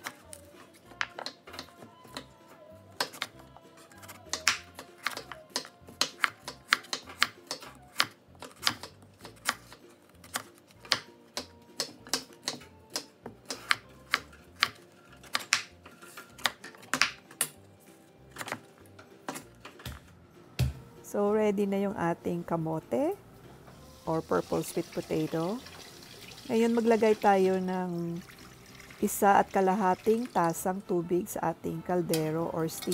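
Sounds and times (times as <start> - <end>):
knife chopping on wooden board: 4.0 - 15.7.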